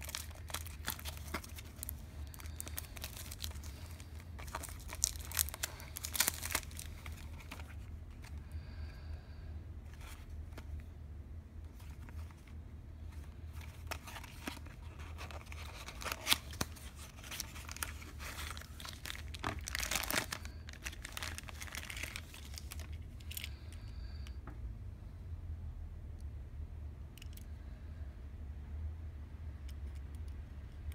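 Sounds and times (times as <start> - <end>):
plastic film crinkling and tearing: 0.0 - 8.2, 13.6 - 23.5
low steady hum: 0.0 - 30.9.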